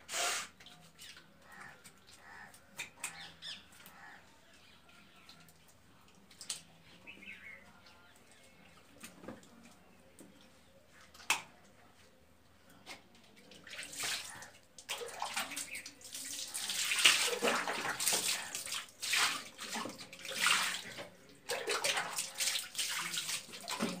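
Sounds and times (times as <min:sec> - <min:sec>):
water splashing onto tiled floor: 0:05.0 - 0:07.2, 0:13.3 - 0:24.0.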